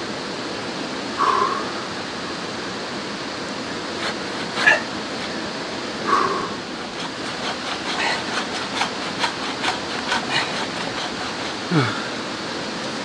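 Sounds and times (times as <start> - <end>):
steady background rush: 1.2 - 12.3
hand tool strokes on wood: 3.8 - 12.2.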